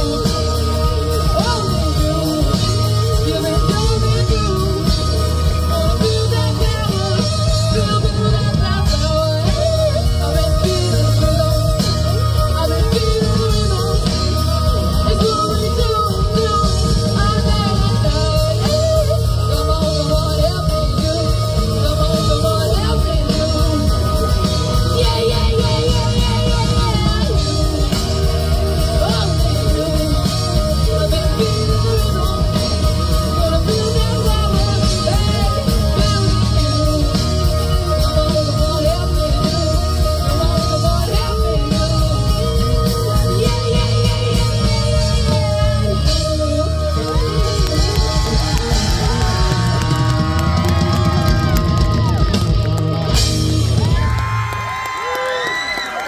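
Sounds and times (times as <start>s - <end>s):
woman singing: 0.0s - 52.3s
live rock band playing: 0.0s - 56.0s.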